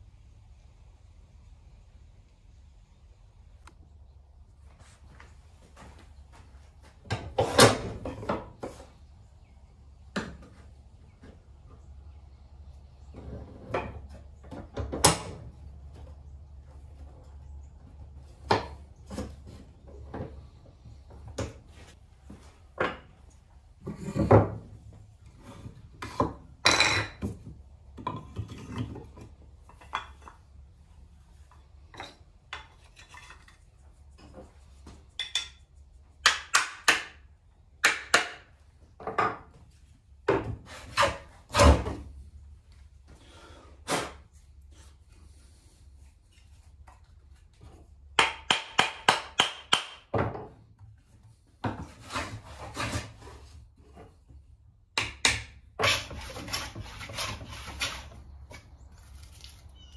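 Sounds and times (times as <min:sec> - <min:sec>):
wood scraping on wood: 0:31.5 - 0:34.5, 0:40.6 - 0:41.7, 0:51.7 - 0:54.2, 0:55.8 - 0:59.9.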